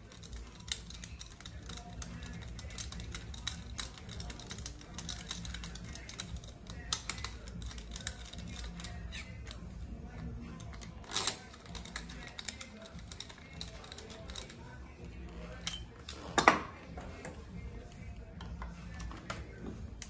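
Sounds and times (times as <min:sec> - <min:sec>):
hand tool clicking on metal: 0:00.0 - 0:09.6, 0:10.5 - 0:14.6.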